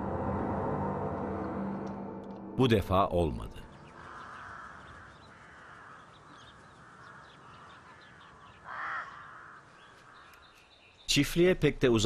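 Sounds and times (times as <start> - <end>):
outdoor ambience: 0.0 - 12.0
crow cawing: 3.8 - 10.6.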